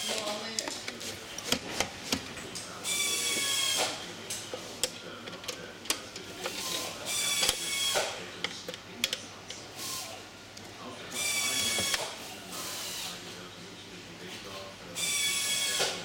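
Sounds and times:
power screwdriver running: 11.2s - 13.2s, 15.0s - 15.9s.

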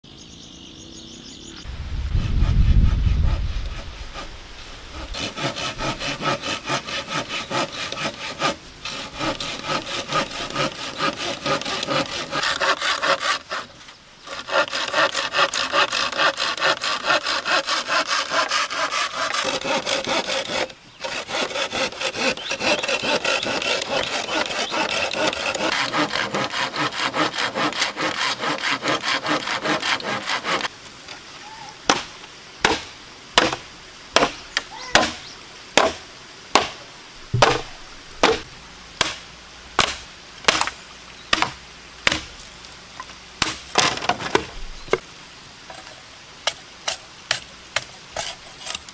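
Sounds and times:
hand saw cutting bamboo: 2.2s - 4.3s, 4.9s - 30.7s, 46.9s - 48.9s
knife chopping bamboo: 33.4s - 33.6s, 35.8s - 39.2s, 39.8s - 40.7s, 41.3s - 42.3s.

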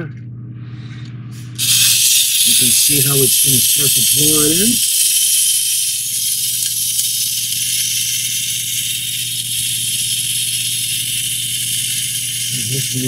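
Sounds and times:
constant hiss: 1.6s - 10.6s
small electric winch motor humming: 1.6s - 13.0s.

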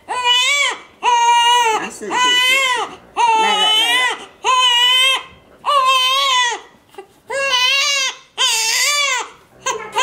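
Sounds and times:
newborn baby crying: 0.0s - 10.0s.

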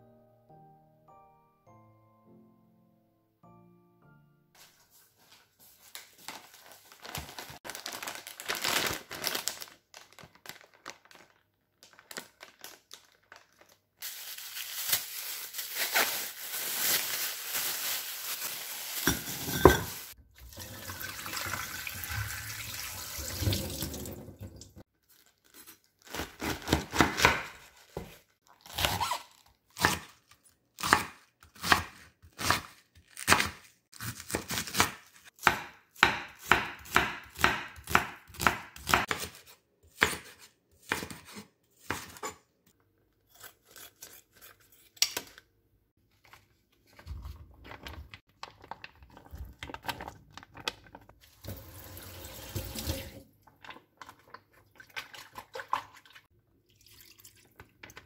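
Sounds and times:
knife chopping on wooden board: 34.1s - 39.4s.

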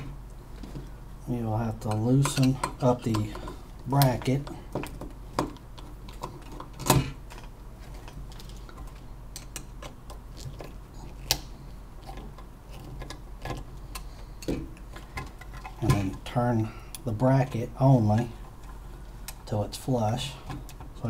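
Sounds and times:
low steady hum: 0.0s - 21.0s
screwdriver clicks and metal clinks: 1.9s - 4.2s.

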